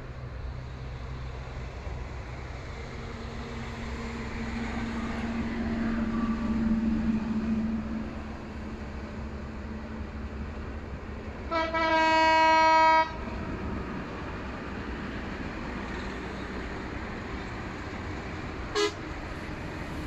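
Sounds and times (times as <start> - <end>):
locomotive horn: 11.5 - 13.2, 18.7 - 19.1.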